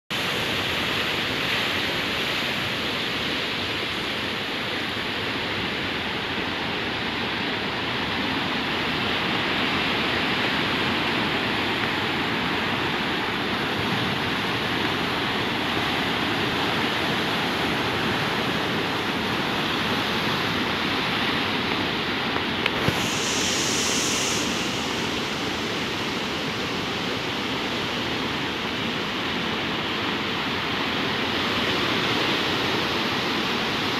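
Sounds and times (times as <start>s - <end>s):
waves breaking on rocks: 7.2s - 33.9s.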